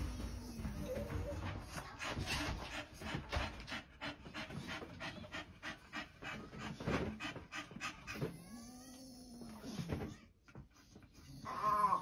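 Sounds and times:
dog panting rapidly: 0.9 - 8.4.

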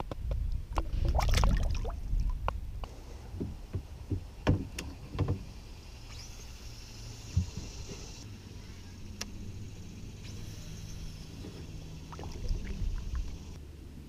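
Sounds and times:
wind rumble on microphone: 0.0 - 5.5, 11.6 - 14.0.

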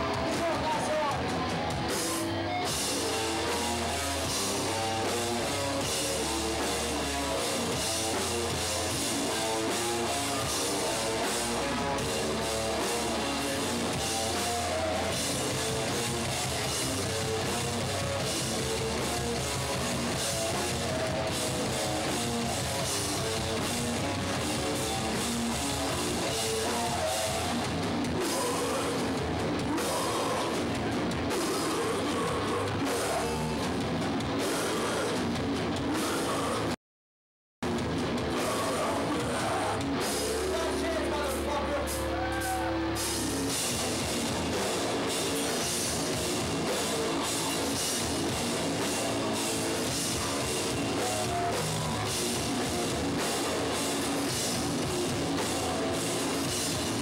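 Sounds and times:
drums: 0.0 - 36.8, 37.6 - 57.0
electric guitar: 0.0 - 36.8, 37.6 - 57.0.

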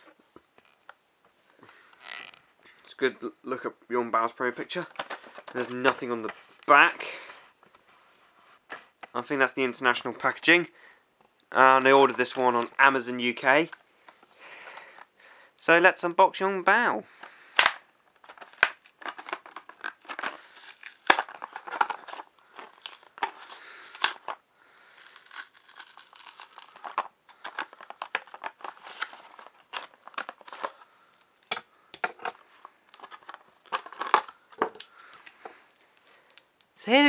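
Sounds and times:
packaging crinkling and tearing: 17.5 - 30.9, 32.2 - 35.2.

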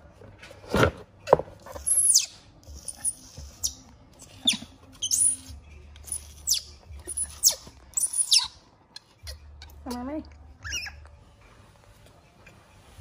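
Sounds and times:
baby monkey shrieking: 1.9 - 3.8, 6.1 - 8.6, 10.6 - 11.0.

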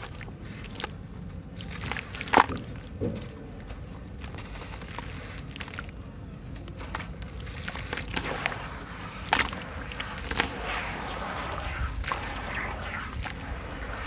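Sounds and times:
wet squelching and splashing: 0.0 - 3.0, 4.3 - 6.0, 7.3 - 14.0
gritty crunching and crackling: 6.7 - 14.0.

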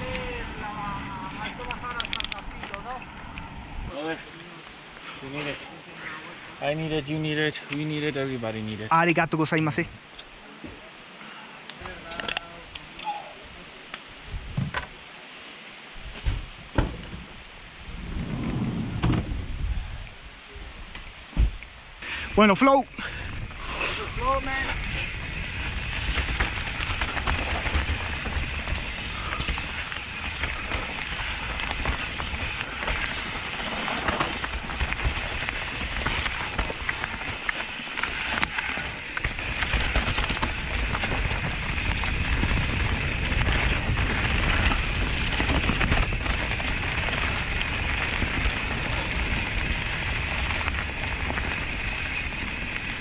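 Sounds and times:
wind rushing over microphone: 0.0 - 3.9, 14.2 - 14.9, 16.0 - 22.4, 23.1 - 53.0
bike tyres crackling over leaves: 0.0 - 16.2, 16.8 - 20.6, 22.0 - 53.0
bike rattling over bumps: 23.0 - 53.0.

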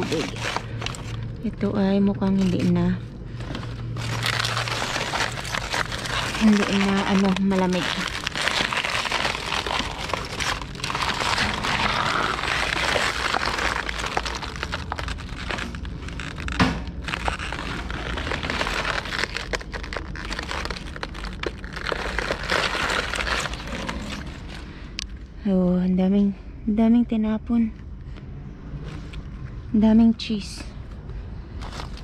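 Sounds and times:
plastic bags crinkling: 0.0 - 24.8, 31.6 - 32.0.

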